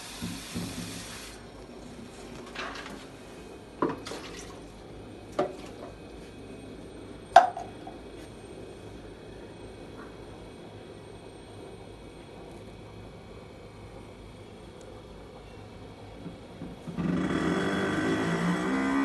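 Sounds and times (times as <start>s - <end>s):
hiss: 0.0s - 1.5s
refrigerator humming: 0.0s - 19.0s.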